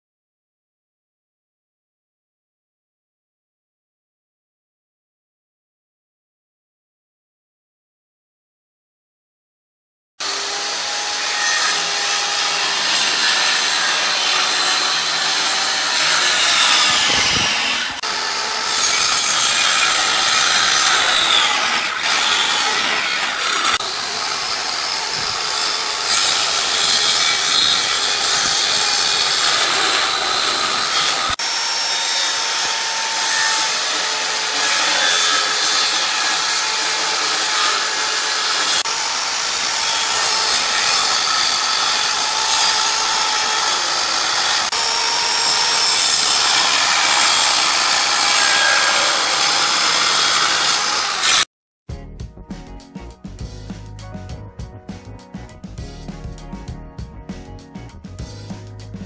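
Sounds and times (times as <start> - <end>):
circular saw cutting wood: 10.2 - 51.5.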